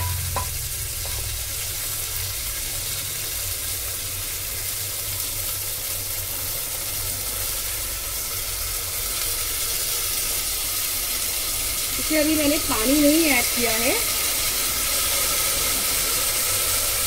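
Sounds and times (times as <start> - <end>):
masala sizzling in oil: 0.0 - 17.0.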